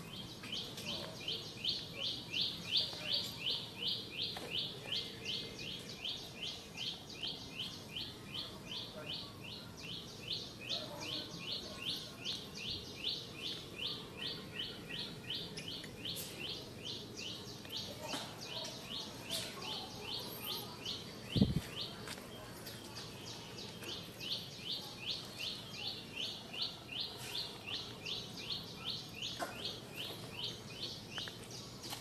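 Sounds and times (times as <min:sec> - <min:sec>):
faint outdoor background noise: 0:00.0 - 0:32.0.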